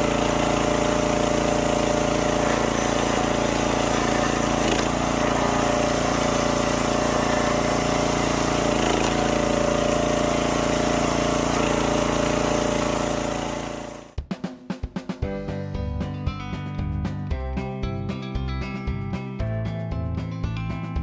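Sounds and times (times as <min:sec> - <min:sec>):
small gas engine running: 0:00.0 - 0:14.2
music with drums: 0:14.1 - 0:21.0.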